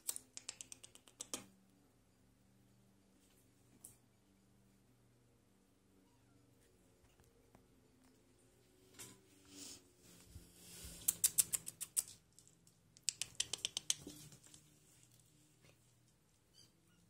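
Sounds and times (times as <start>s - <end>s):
kitten paws pattering on floor: 10.2s - 16.2s.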